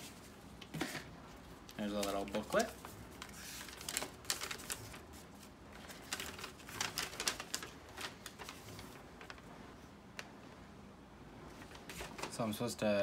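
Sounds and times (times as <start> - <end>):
paper leaflet crinkling: 1.7 - 9.5.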